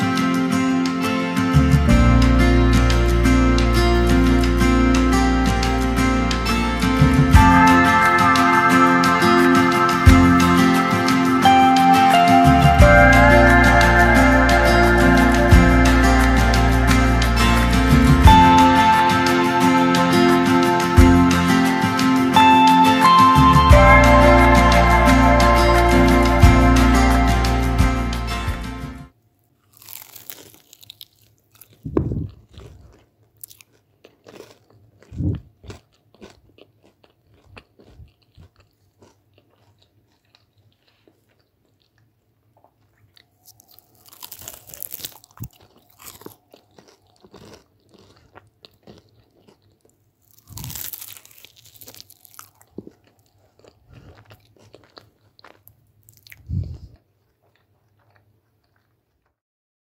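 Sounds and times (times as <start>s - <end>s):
crunching of crisp pastry bites: 29.5s - 59.4s.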